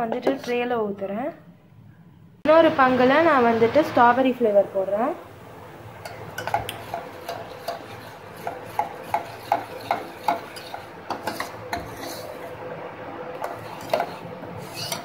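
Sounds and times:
metal spoon stirring in pot: 6.0s - 12.6s, 13.3s - 15.0s.

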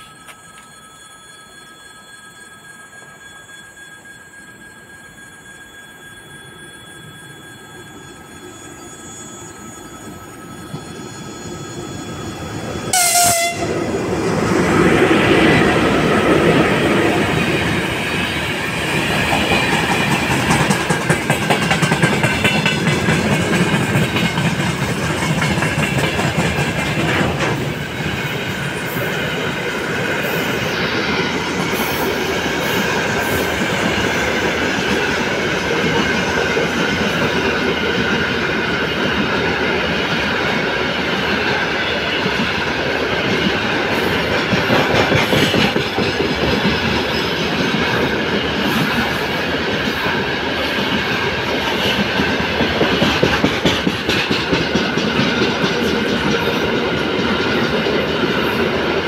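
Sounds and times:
train wheels rumbling: 9.5s - 59.0s
locomotive horn blast: 12.9s - 13.9s
clickety-clack over rail joints: 18.8s - 59.0s.

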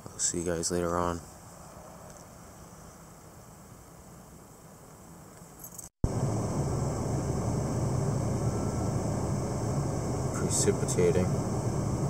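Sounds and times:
vehicle running hum and hiss: 6.0s - 12.0s.

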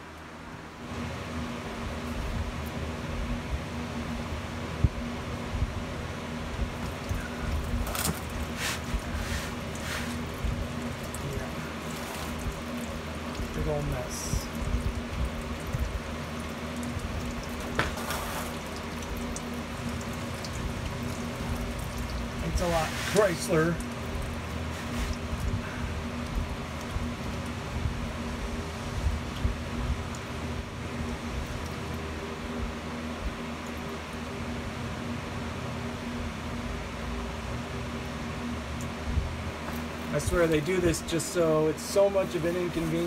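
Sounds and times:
steady mechanical hum: 0.0s - 43.0s
oil draining into a plastic pan: 6.8s - 25.4s.

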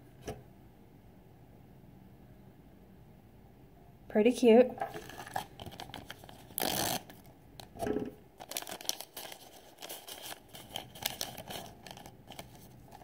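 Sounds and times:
foil bag ripping and crinkling: 5.0s - 7.2s, 8.4s - 13.0s.

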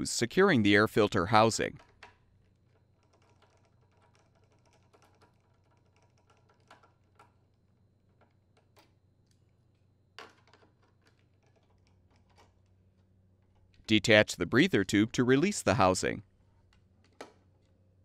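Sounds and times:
low steady hum: 10.8s - 18.0s.

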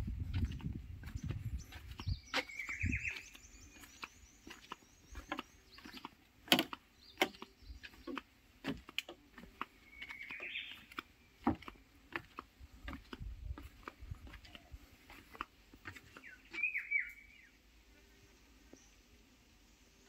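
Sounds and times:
bird chirring call: 2.1s - 6.0s, 9.8s - 10.9s, 16.2s - 17.6s
sharp knocks and taps: 4.5s - 9.7s.

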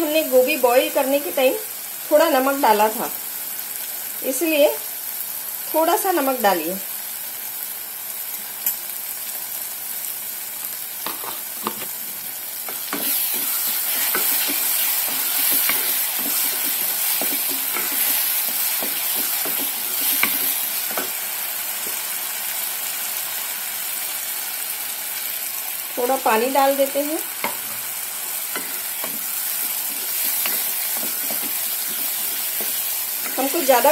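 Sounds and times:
paste sizzling in oil: 0.0s - 33.9s
wooden spoon scraping a pan: 11.1s - 21.2s, 28.5s - 33.9s.

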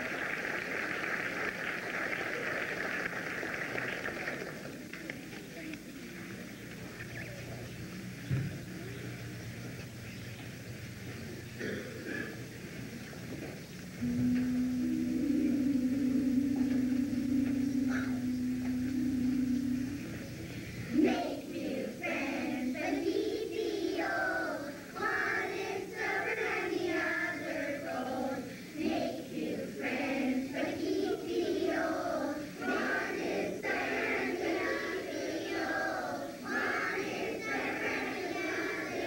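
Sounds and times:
children's choir singing: 14.0s - 39.0s.

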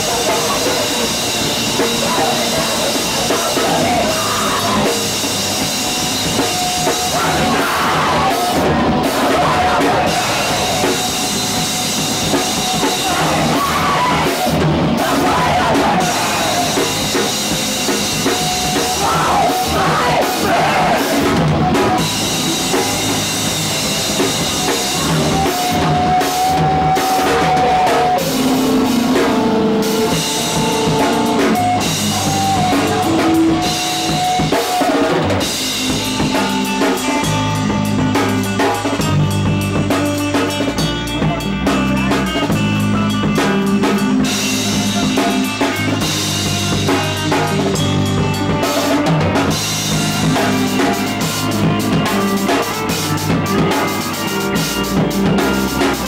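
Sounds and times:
shouted vocals: 0.0s - 5.3s, 6.2s - 35.5s
drum kit: 0.0s - 56.0s
guitar: 0.0s - 56.0s.

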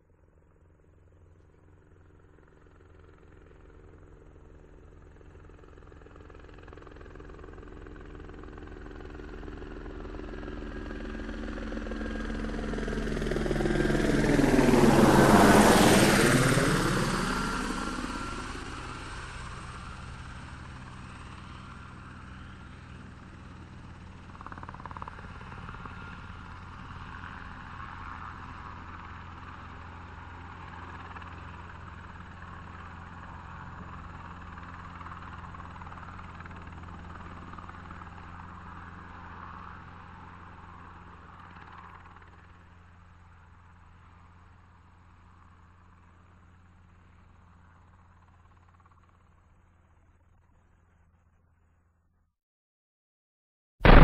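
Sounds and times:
aircraft engine passing over: 11.9s - 22.9s.

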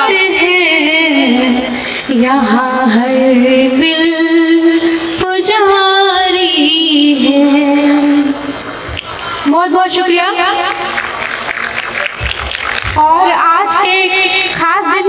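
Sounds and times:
woman singing into microphone: 0.0s - 8.6s.

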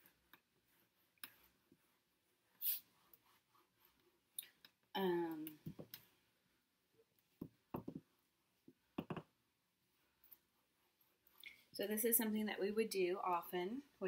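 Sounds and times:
eraser tapping board: 9.0s - 9.3s.

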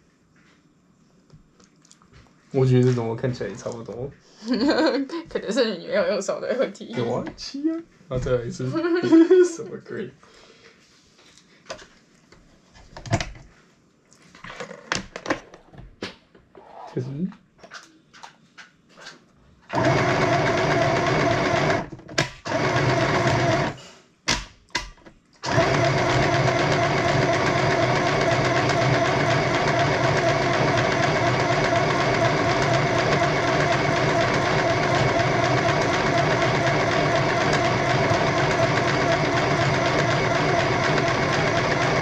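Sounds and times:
sewing machine stitching: 19.7s - 23.8s, 25.4s - 42.0s.

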